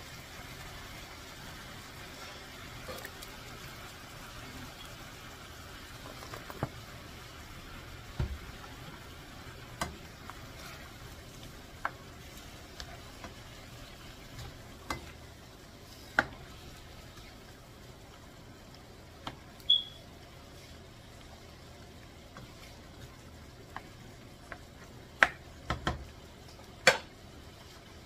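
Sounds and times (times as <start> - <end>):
squid sizzling in frying pan: 0.0 - 28.0.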